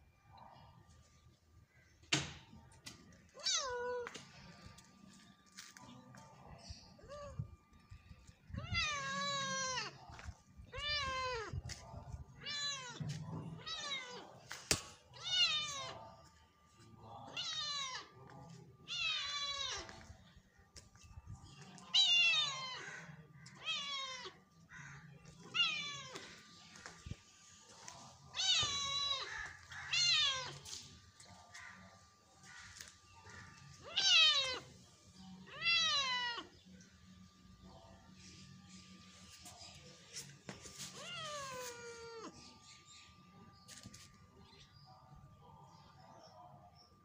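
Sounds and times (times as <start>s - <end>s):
cat meowing: 8.6s - 10.0s, 10.7s - 11.6s, 12.3s - 14.4s, 15.2s - 16.0s, 23.5s - 24.4s, 25.4s - 26.3s, 28.3s - 30.6s, 33.8s - 34.7s, 35.5s - 36.5s, 40.9s - 42.4s.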